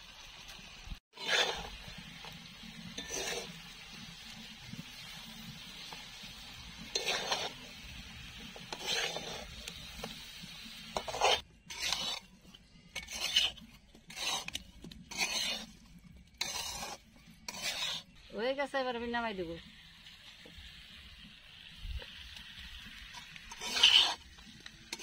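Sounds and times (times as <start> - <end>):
metal spatula scraping a pan: 1.1 - 18.4, 22.8 - 25.0.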